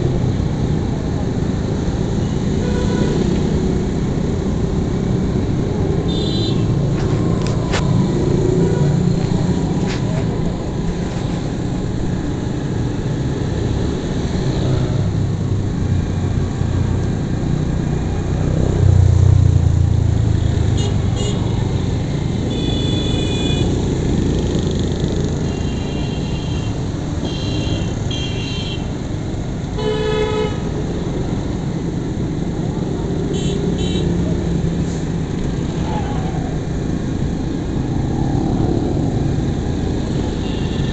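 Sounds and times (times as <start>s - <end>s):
vehicle horns tooting: 6.1s - 6.8s.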